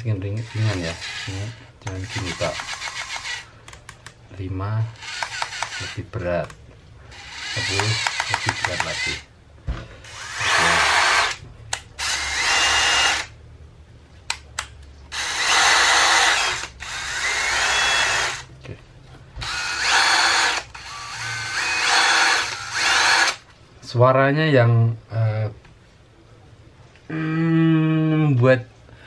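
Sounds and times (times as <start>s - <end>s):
cordless drill motor whine: 0.4s - 3.5s, 5.0s - 6.0s, 7.1s - 9.2s, 10.0s - 11.4s, 12.0s - 13.3s, 15.1s - 18.5s, 19.4s - 23.4s.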